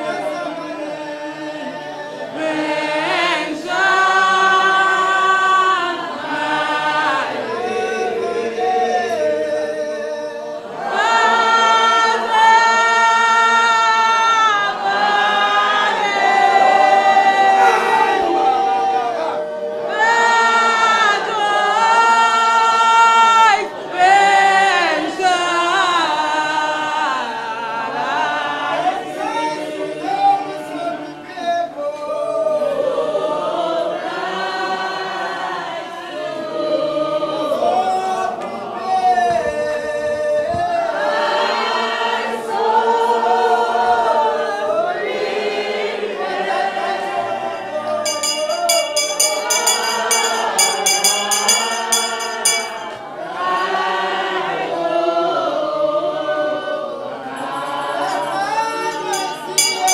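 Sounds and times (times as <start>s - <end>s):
congregation singing a hymn: 0.0s - 59.9s
bell ringing: 48.0s - 53.1s, 57.3s - 59.9s.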